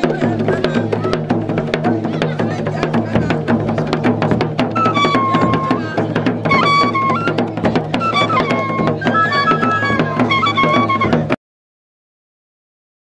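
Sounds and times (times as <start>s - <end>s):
drums beating fast rhythm: 0.0s - 11.4s.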